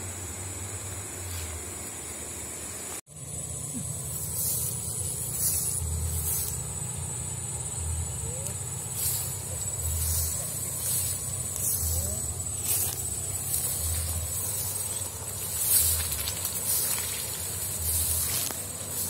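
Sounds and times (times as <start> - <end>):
steady high-pitched whine: 0.0 - 19.0
footsteps through tall grass: 3.8 - 7.2, 8.5 - 19.0.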